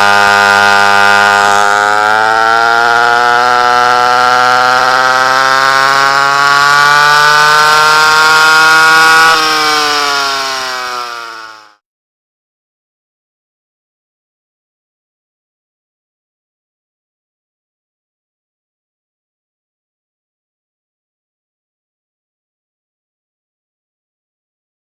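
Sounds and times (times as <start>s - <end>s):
kart engine whining: 0.0s - 11.8s.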